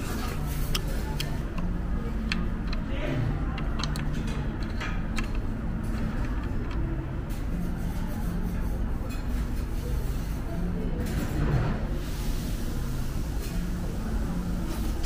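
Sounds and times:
steady hum: 0.0s - 9.1s
murmur of chatter: 0.0s - 15.0s.

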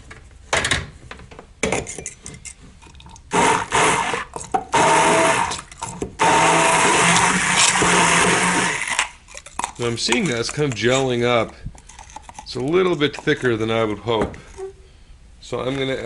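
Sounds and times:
immersion blender motor: 3.3s - 9.1s.

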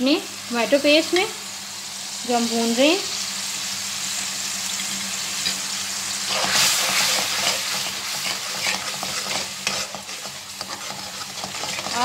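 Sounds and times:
paste sizzling in oil: 0.0s - 12.0s
steel spoon scraping a pan: 6.3s - 12.0s.

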